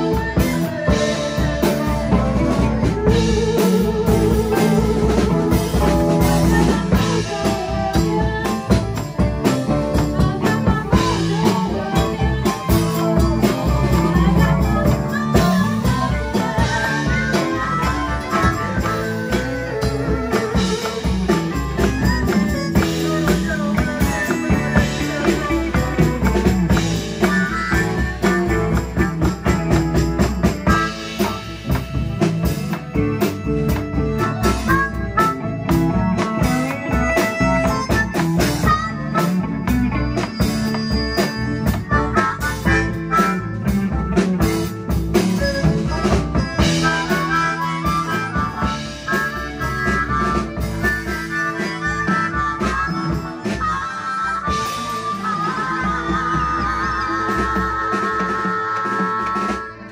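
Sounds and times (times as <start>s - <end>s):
live blues-rock band: 0.0s - 59.9s.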